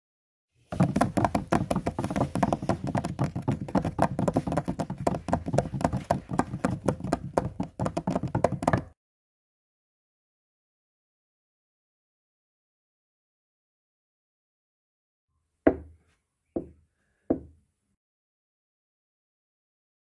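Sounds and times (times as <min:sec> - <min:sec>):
rapid tapping and knocking: 0:00.7 - 0:09.0.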